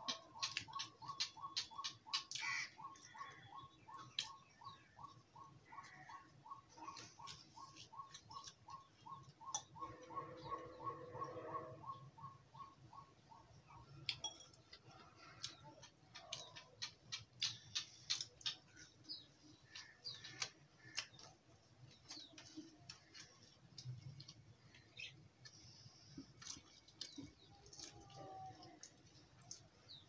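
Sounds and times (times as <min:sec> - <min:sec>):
person chewing crispy food: 0:05.8 - 0:09.9, 0:13.9 - 0:30.0.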